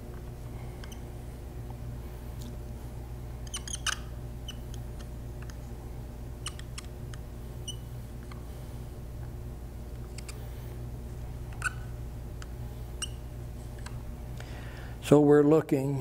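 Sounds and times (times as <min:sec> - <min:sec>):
steady low hum: 0:00.0 - 0:16.0
marker squeaking on plexiglass: 0:03.4 - 0:04.7, 0:11.6 - 0:11.9.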